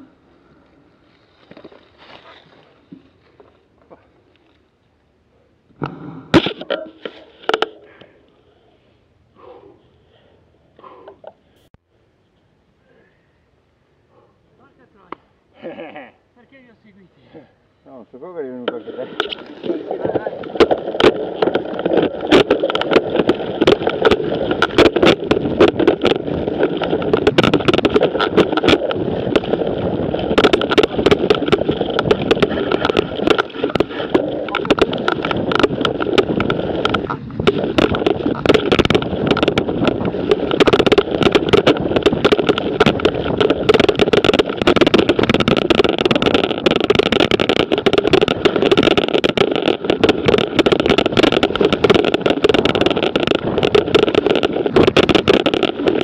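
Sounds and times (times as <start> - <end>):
bike tyres crunching leaves: 0.0 - 4.7, 18.8 - 56.0
bike rattling over bumps: 18.5 - 56.0.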